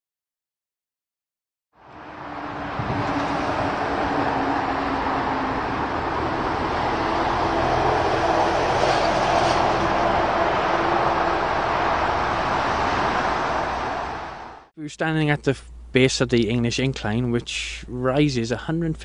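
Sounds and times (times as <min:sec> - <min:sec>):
steady rumbling with hiss: 0:14.8 - 0:19.0.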